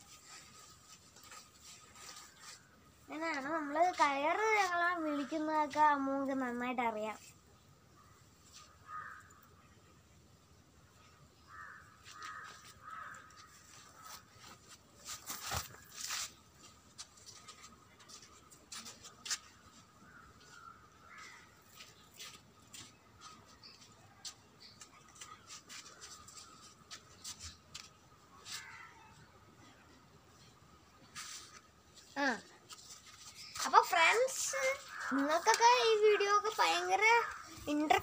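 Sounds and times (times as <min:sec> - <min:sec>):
dry crackles and rustles: 0:00.0 - 0:07.4, 0:11.5 - 0:29.3, 0:30.4 - 0:38.0
crows cawing: 0:08.6 - 0:09.5, 0:11.5 - 0:14.2, 0:20.1 - 0:21.6, 0:28.4 - 0:29.2, 0:34.7 - 0:37.7.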